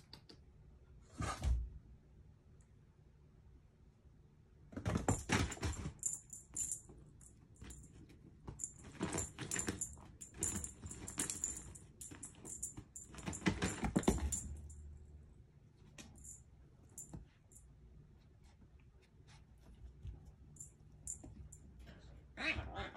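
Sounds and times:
cat toy rattling and jingling: 0:05.0 - 0:08.0, 0:08.6 - 0:14.8.

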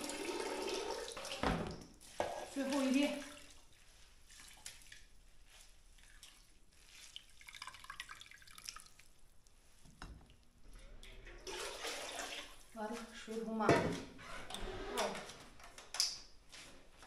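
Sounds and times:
water dripping into steel basin: 0:07.2 - 0:09.2.

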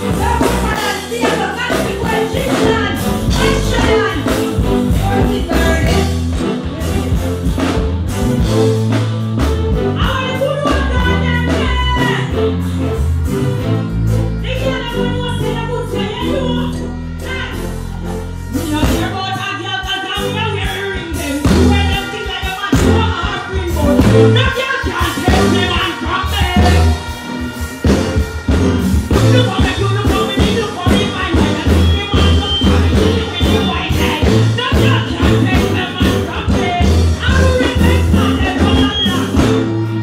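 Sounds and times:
woman singing into microphone: 0:00.0 - 0:07.4, 0:18.5 - 0:27.1
live band playing: 0:00.0 - 0:40.0
steady drum beat: 0:00.0 - 0:40.0.

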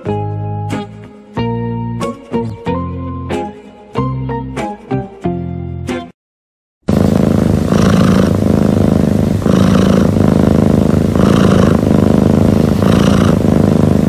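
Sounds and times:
cat purring rumble: 0:06.9 - 0:14.0
cat rasping breath hiss: 0:06.9 - 0:14.0.

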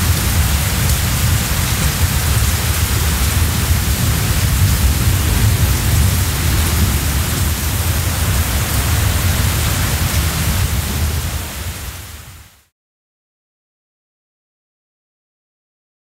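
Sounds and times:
deep rumble: 0:00.0 - 0:11.6
storm wind rushing: 0:00.0 - 0:12.6.

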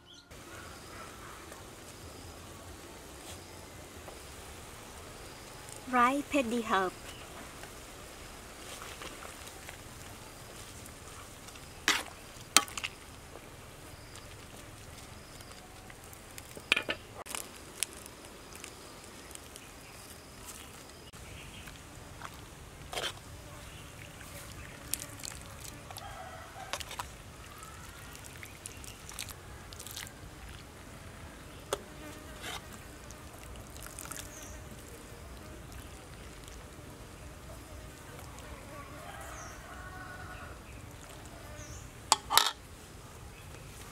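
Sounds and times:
faint buzz of insects: 0:00.0 - 0:43.9
metal ladle clinking against pot: 0:42.1 - 0:42.6.

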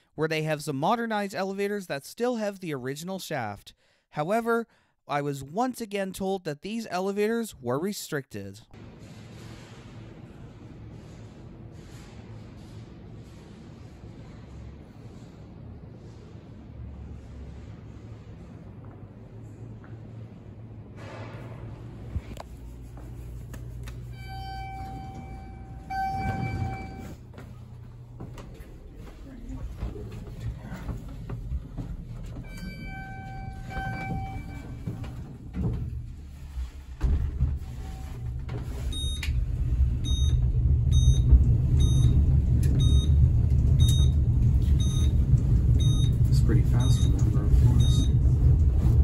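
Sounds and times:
elevator low rumble: 0:08.8 - 0:23.4, 0:24.0 - 0:49.0
low machinery hum: 0:08.8 - 0:49.0
short electronic beep: 0:24.1 - 0:27.2, 0:32.5 - 0:34.8, 0:40.0 - 0:42.2, 0:42.8 - 0:43.2, 0:44.8 - 0:45.1, 0:46.8 - 0:48.1
elevator buzzer tone: 0:24.1 - 0:27.3, 0:32.4 - 0:35.3, 0:40.0 - 0:42.2, 0:42.8 - 0:43.2, 0:43.8 - 0:44.2, 0:44.8 - 0:45.2.

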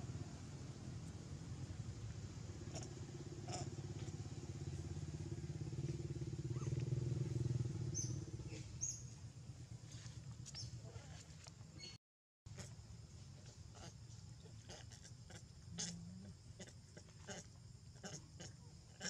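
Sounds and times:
vehicle engine hum: 0:00.0 - 0:11.8.

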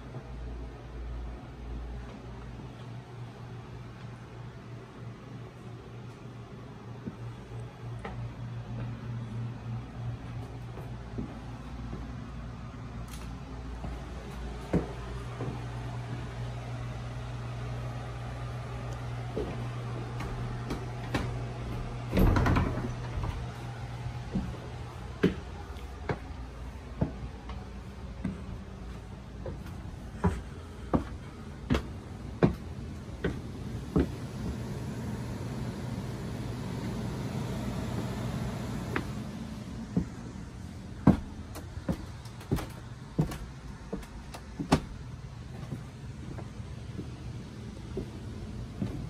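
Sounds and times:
steady low hum: 0:00.0 - 0:49.0
footsteps on wooden stairs: 0:10.2 - 0:12.2, 0:13.8 - 0:16.5, 0:19.0 - 0:35.3, 0:36.8 - 0:49.0.

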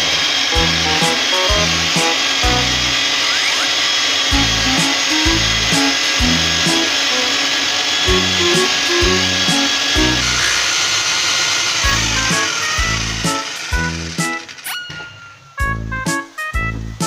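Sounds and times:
electric paddle mixer churning liquid: 0:00.0 - 0:14.8
music with steady beat: 0:00.5 - 0:03.0, 0:04.3 - 0:10.5, 0:11.9 - 0:15.0, 0:15.6 - 0:17.0.

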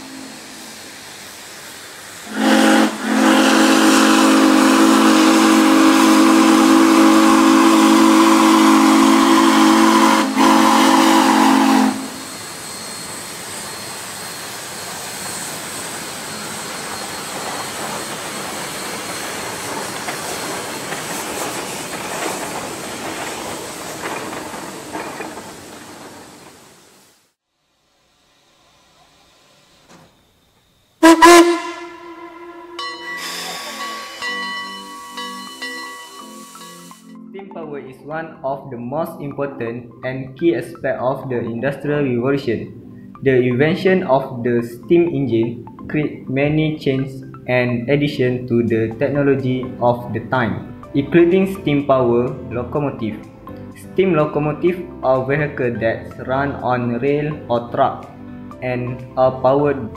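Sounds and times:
steam whistles chord: 0:00.0 - 0:21.6, 0:28.1 - 0:37.5
steam hissing: 0:00.0 - 0:37.2.

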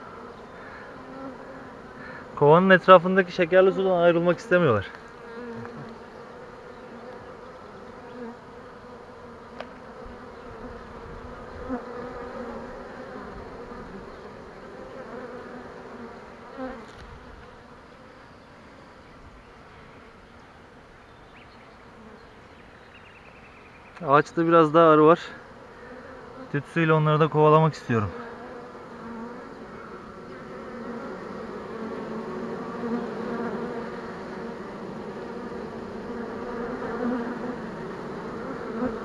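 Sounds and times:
bees buzzing: 0:00.0 - 0:39.0.

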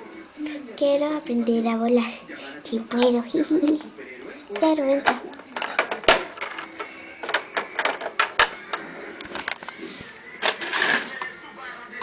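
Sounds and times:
plastic toys clicking and knocking: 0:04.6 - 0:08.8, 0:10.4 - 0:11.3.

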